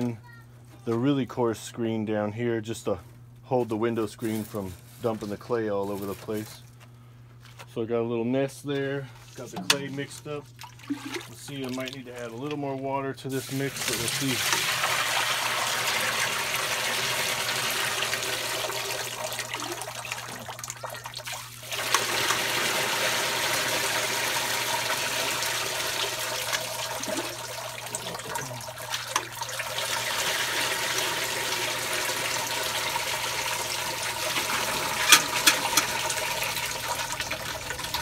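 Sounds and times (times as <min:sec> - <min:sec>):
liquid pouring through strainer: 0:13.4 - 0:38.0.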